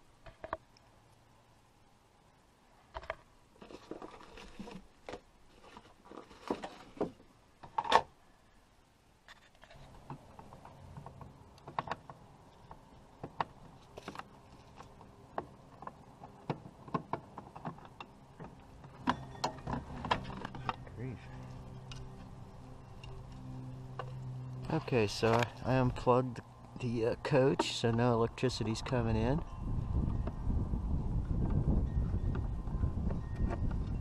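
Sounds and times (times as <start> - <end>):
low steady hum: 0.0 - 34.0
hand handling wires and parts: 9.3 - 26.1.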